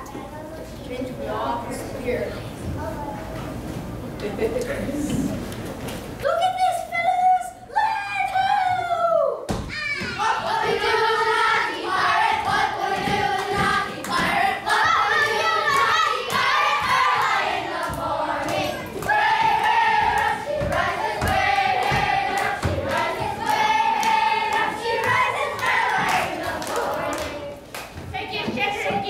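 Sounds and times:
children singing in unison: 0:10.2 - 0:27.6.

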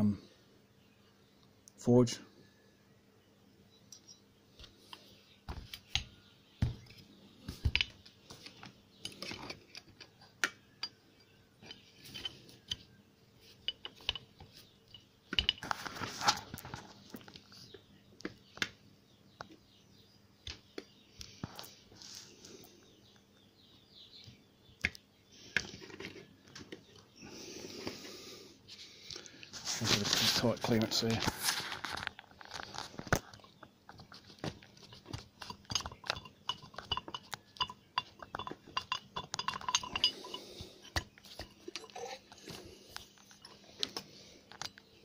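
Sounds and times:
scraping and rustling: 0:11.6 - 0:17.7, 0:27.6 - 0:44.8
metal pipe fittings clicking: 0:13.6 - 0:14.3, 0:34.9 - 0:42.6.

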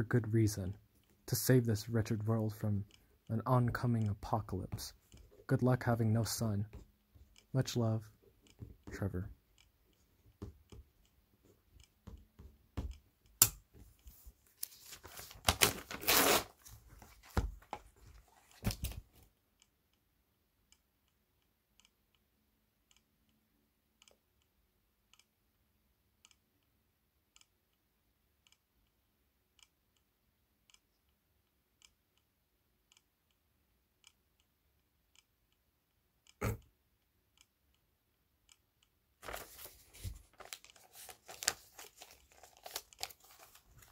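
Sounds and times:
paper rustling and tearing: 0:14.6 - 0:17.4, 0:39.2 - 0:43.9
faint regular tick: 0:20.7 - 0:22.3, 0:22.9 - 0:23.4, 0:25.1 - 0:25.3, 0:26.2 - 0:26.7, 0:28.4 - 0:29.0, 0:32.9 - 0:33.4, 0:34.0 - 0:43.9.

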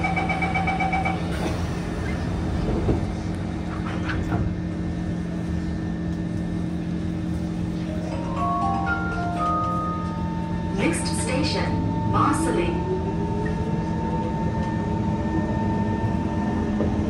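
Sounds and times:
metro train hum and rumble: 0:00.0 - 0:17.0.

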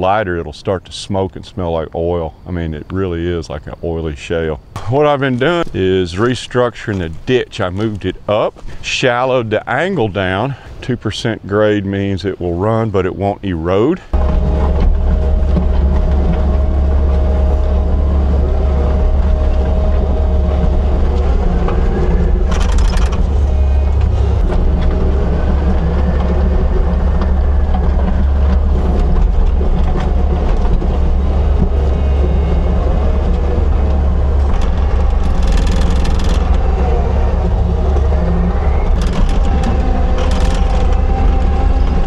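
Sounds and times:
heavy machine engine running: 0:14.1 - 0:42.0.

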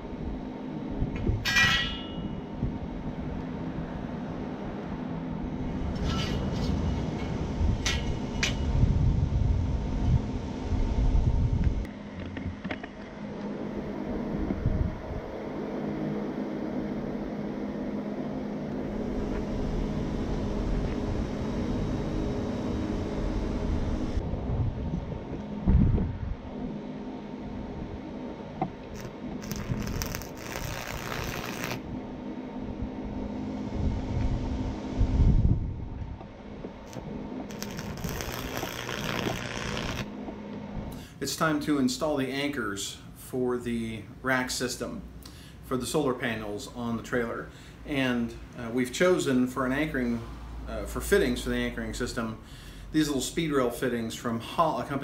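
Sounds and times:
low rumble and hum: 0:00.0 - 0:55.0
welder arc crackling and sizzling: 0:28.9 - 0:31.9, 0:36.8 - 0:40.1.

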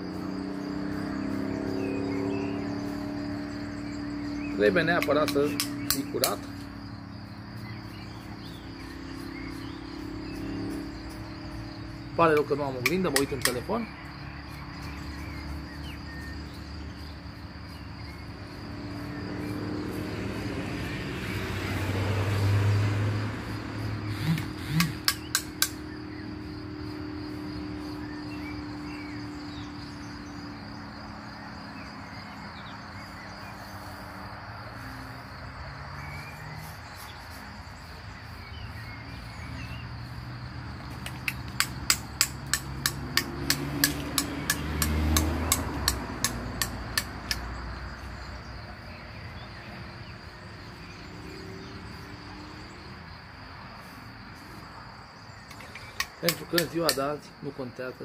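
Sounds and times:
high insect trill: 0:00.0 - 0:58.0
razor tapping on ceramic cup: 0:24.8 - 0:25.8.

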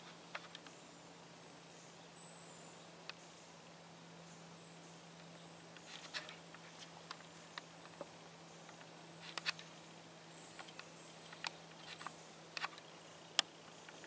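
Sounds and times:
twigs and dry leaves crackling: 0:05.7 - 0:09.8.

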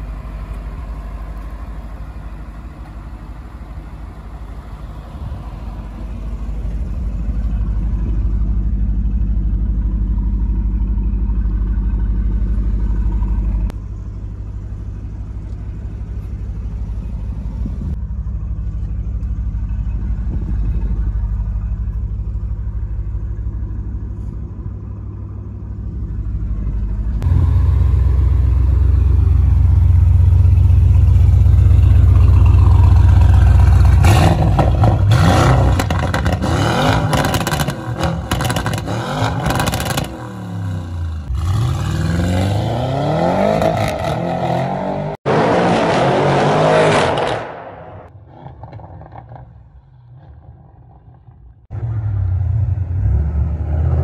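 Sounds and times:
car engine idling: 0:00.0 - 0:41.8
car engine revving: 0:26.5 - 0:54.0
car accelerating away: 0:32.1 - 0:54.0.

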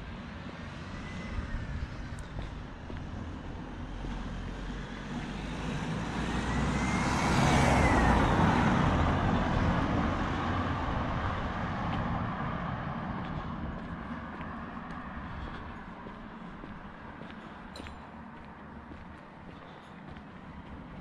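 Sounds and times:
car driving past: 0:00.7 - 0:16.7.

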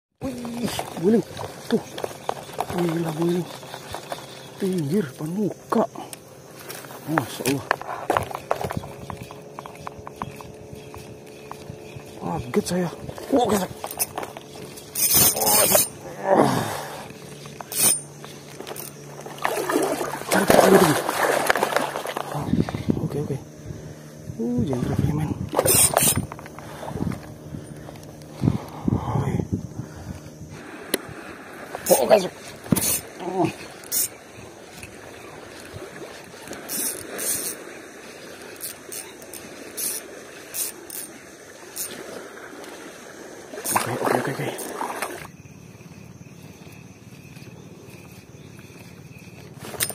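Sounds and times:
fishing line hissing out: 0:00.2 - 0:49.9
lapping seawater: 0:00.2 - 0:49.9
man groaning exclamation: 0:15.4 - 0:16.8.

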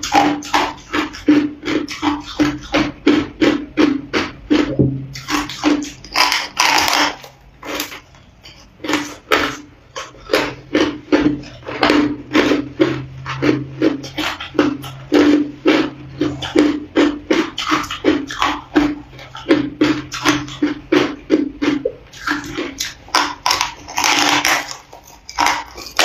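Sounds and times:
teeth crunching hard ice: 0:00.0 - 0:26.0.

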